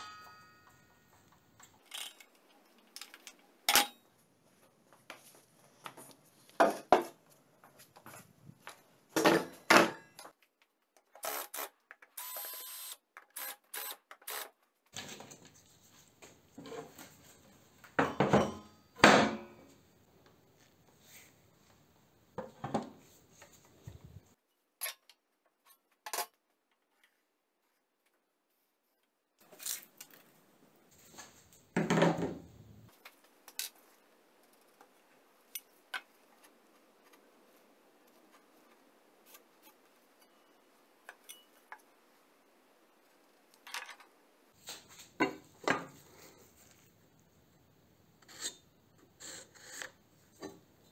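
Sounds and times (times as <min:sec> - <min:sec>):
metallic tool clinks and knocks: 0:00.0 - 0:02.2.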